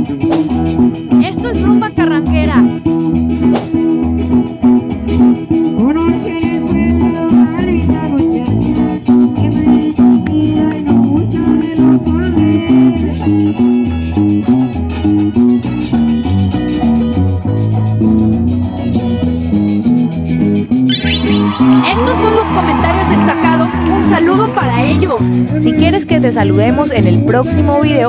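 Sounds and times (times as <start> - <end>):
string band dance music: 0.3 - 1.9, 20.9 - 26.8.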